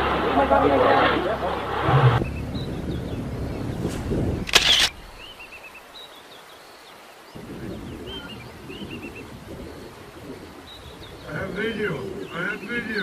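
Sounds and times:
loud rush of noise: 0:00.0 - 0:05.0
small birds chirping: 0:02.2 - 0:13.0.

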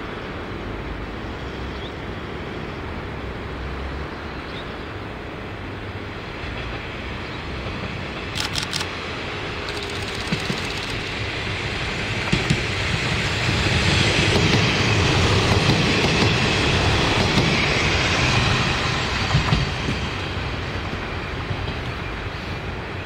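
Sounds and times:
diesel railcar passing: 0:00.0 - 0:23.0
wheels clacking on rail joints: 0:09.7 - 0:11.2.

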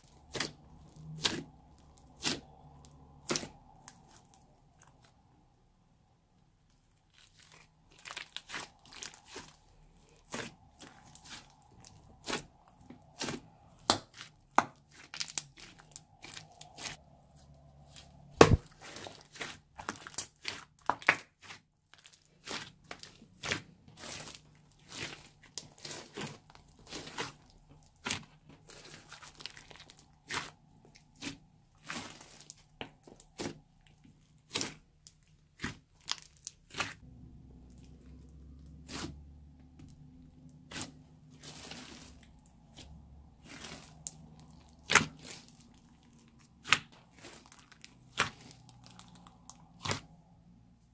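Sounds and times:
sticky slime pops and crackles: 0:18.4 - 0:21.6, 0:43.4 - 0:50.2.

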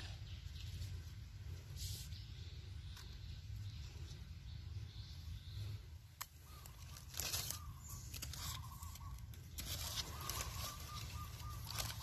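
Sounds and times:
dry leaves rustling and crunching: 0:06.2 - 0:12.0.

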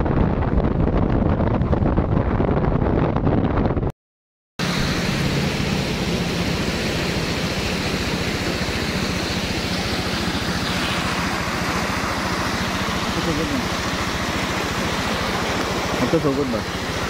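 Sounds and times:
road and wind noise: 0:00.0 - 0:03.9, 0:04.6 - 0:17.0
vehicle engine running: 0:04.6 - 0:17.0.

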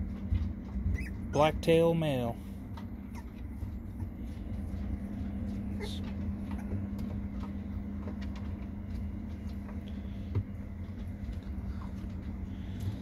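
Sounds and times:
low machine hum: 0:00.0 - 0:13.0
puppies scratching on wooden floor: 0:00.0 - 0:13.0.

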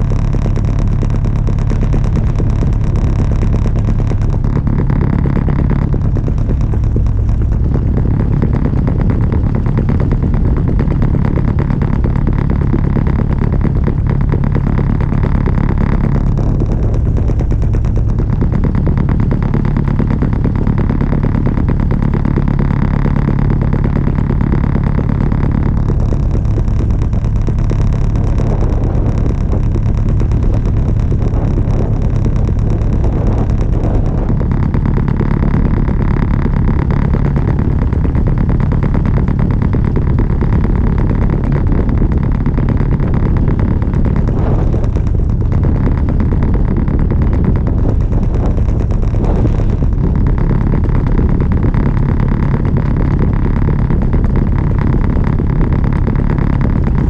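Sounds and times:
boat engine droning: 0:00.0 - 0:57.0.

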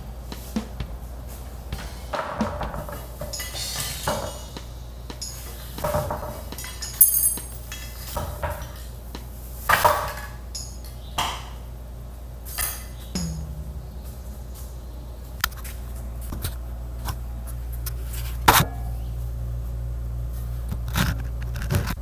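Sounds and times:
metal parts clinking and knocking: 0:06.6 - 0:08.2.

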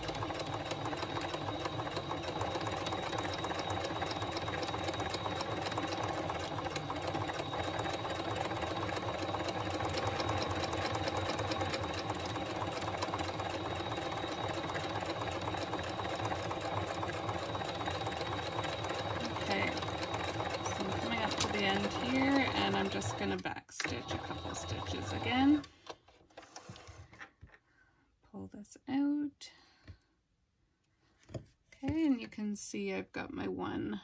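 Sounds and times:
sewing machine stitching: 0:00.0 - 0:26.9.

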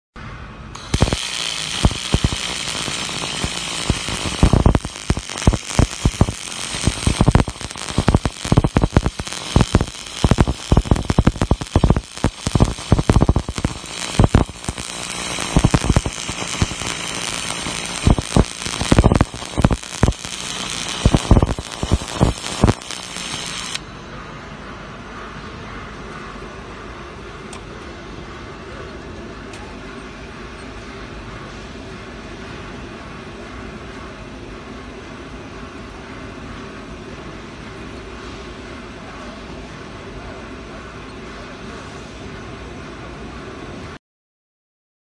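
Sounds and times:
welding arc hissing and crackling: 0:00.8 - 0:23.8.

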